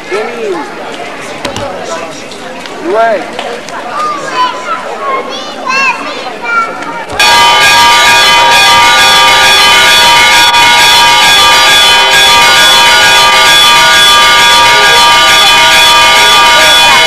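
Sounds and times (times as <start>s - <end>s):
church bells ringing: 7.2s - 17.0s.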